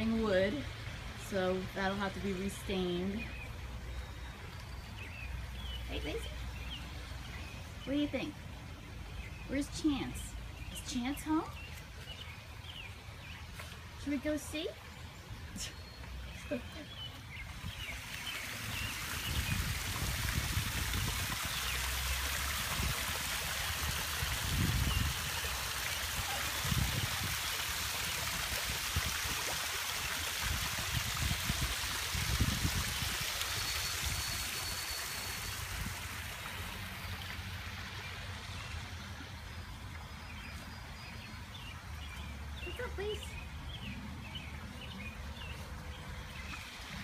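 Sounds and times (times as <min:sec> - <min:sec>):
waterfall splashing: 0:17.0 - 0:38.8.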